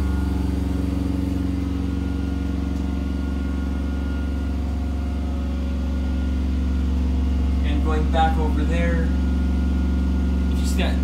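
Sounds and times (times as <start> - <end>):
machinery drone: 0.0 - 11.0.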